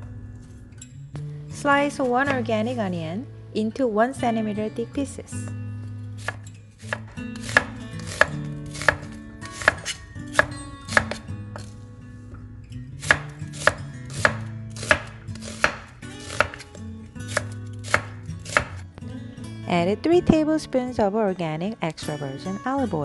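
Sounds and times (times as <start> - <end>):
knife chopping on wooden board: 6.2 - 11.7, 13.0 - 16.7, 17.3 - 18.8.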